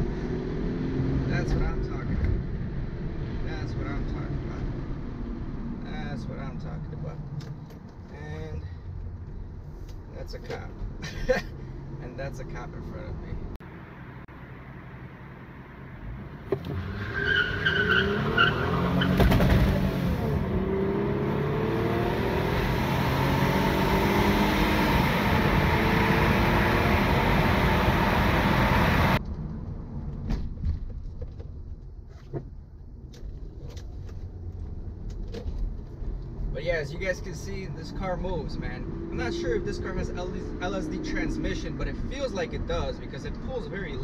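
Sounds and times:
cabin road noise: 0.0s - 44.0s
tire squeal: 16.7s - 19.4s
car engine revving hard: 16.7s - 29.2s.

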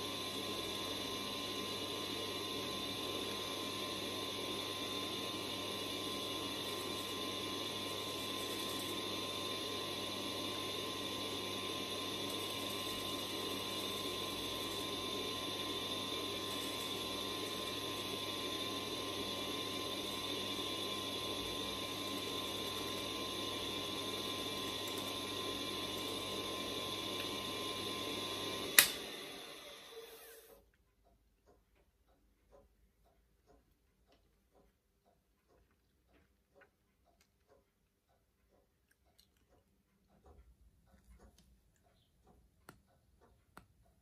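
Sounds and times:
lathe motor hum and whine: 0.0s - 30.5s.

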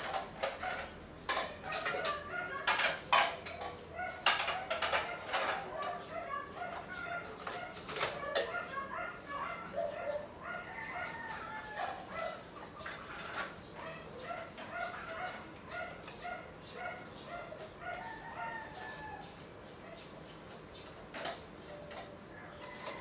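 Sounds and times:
dishes clinking in sink: 0.0s - 6.0s.

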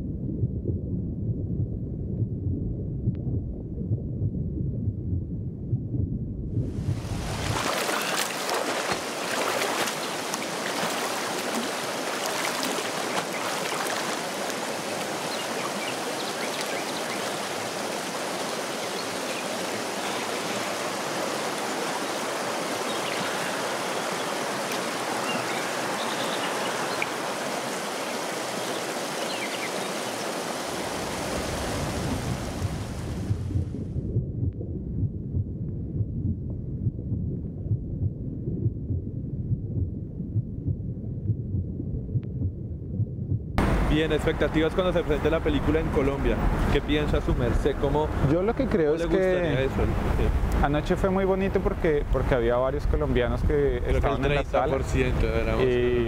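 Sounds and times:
river water flowing: 7.0s - 33.2s.

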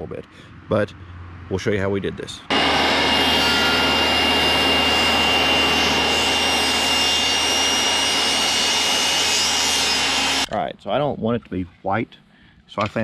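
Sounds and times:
table saw cutting wood: 2.5s - 10.5s.

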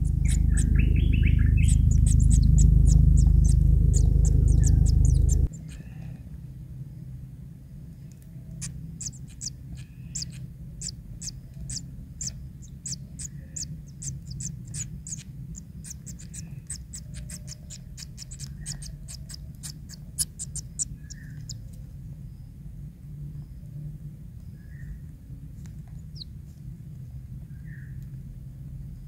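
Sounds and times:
nestlings peeping: 0.0s - 6.3s, 8.0s - 22.6s, 24.3s - 26.4s
low rumble: 0.0s - 22.5s.

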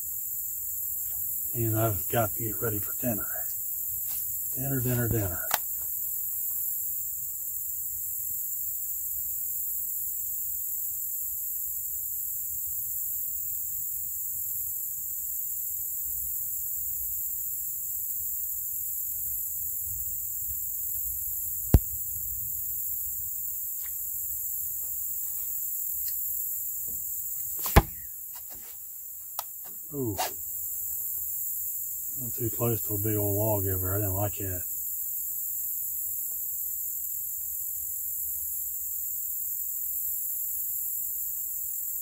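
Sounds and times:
crickets and insects chirping: 0.0s - 42.0s
sharp click: 5.4s - 5.7s.

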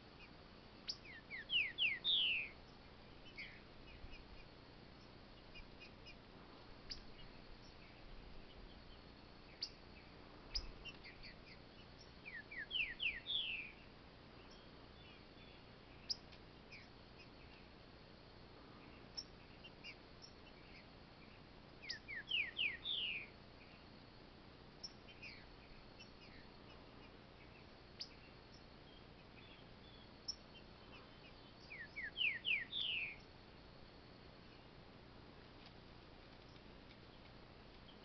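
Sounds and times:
bird singing falling whistles: 1.1s - 2.5s, 12.3s - 13.7s, 21.8s - 23.3s, 31.7s - 33.2s.

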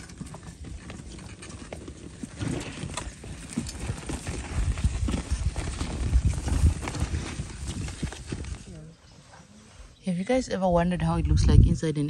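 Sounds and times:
hooves thudding: 0.0s - 8.7s
plough turning earth: 0.0s - 9.0s
footsteps: 0.0s - 9.5s.

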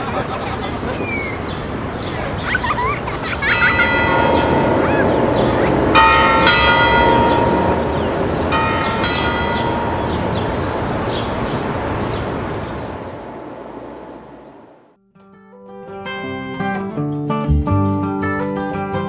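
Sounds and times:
church bell ringing: 2.7s - 14.6s
low rumble: 3.4s - 14.8s.

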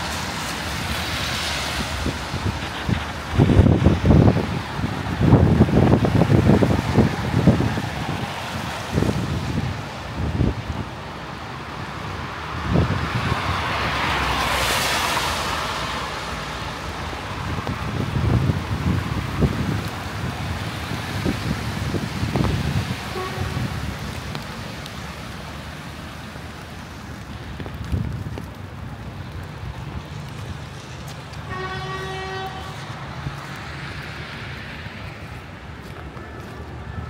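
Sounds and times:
city traffic rumble: 0.0s - 37.0s
wind buffeting microphone: 1.1s - 14.4s, 15.5s - 31.6s
vehicle horn: 23.1s - 23.8s, 31.5s - 32.9s.

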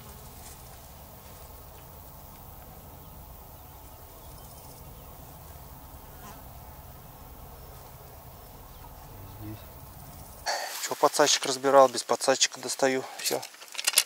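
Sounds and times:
flying insects buzzing: 0.0s - 11.8s.

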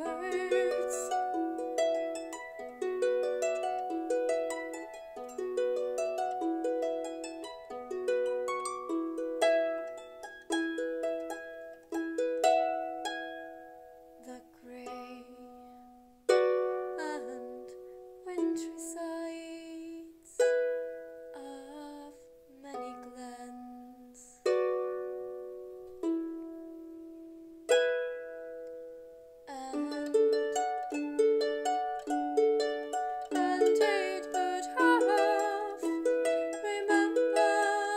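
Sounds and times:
harp music: 0.0s - 37.9s.

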